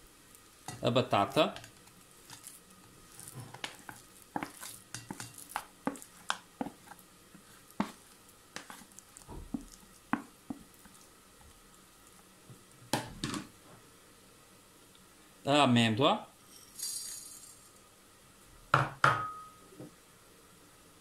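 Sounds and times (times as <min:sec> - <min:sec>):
spatula scraping a bowl: 0:00.7 - 0:11.0.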